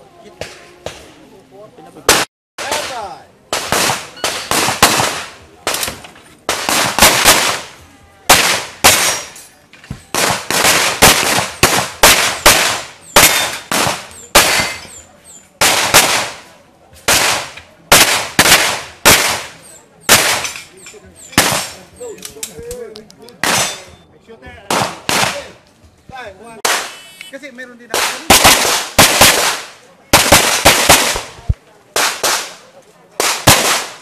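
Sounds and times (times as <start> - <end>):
pistol shots with echo: 2.1 - 9.4, 10.1 - 15.0, 15.6 - 16.5, 17.1 - 20.7, 21.4 - 21.9, 24.7 - 25.5, 27.9 - 32.6, 33.2 - 34.0.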